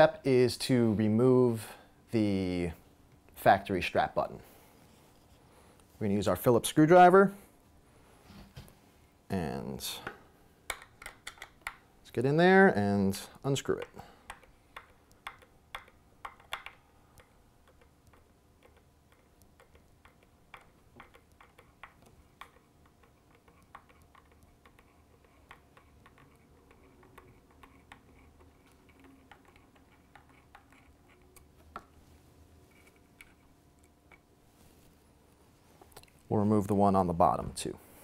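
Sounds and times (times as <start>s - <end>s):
screwdriver clicking and ticking: 13.7s - 30.8s.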